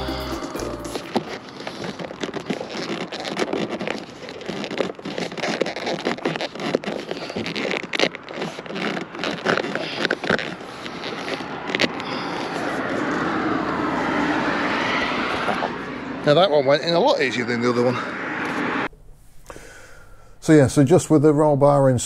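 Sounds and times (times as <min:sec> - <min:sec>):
plastic crackling and scraping: 0:00.9 - 0:13.3.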